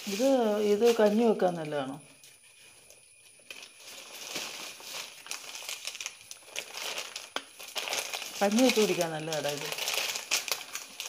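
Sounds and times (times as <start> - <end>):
plastic packets crinkling: 2.9 - 11.0.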